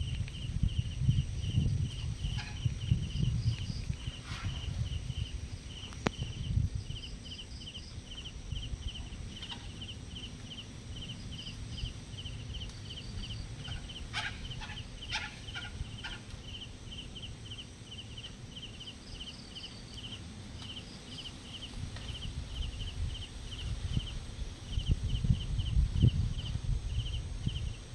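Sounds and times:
low rumbling background: 0.0 - 20.2
insect chirping: 0.0 - 27.9.

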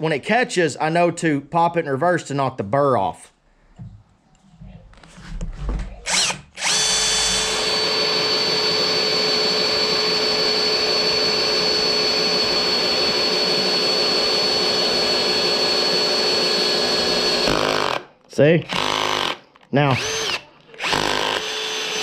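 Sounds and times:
electric drill drilling metal: 6.1 - 18.1, 18.7 - 22.0.

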